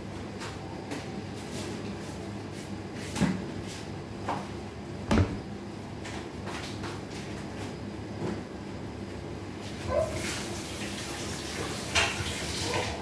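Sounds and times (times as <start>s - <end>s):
cutting board thumping on table: 5.1s - 5.4s
kitchen knocks and clatter: 5.1s - 5.5s.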